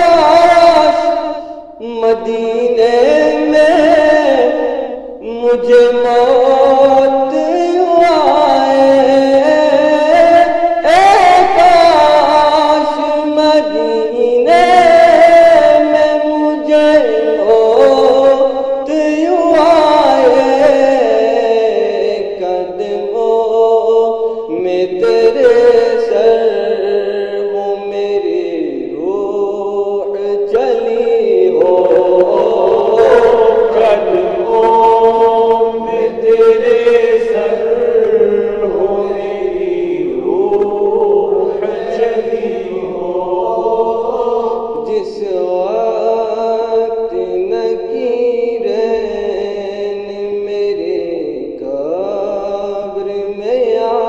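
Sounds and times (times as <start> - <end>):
group of voices chanting: 31.5 - 44.8.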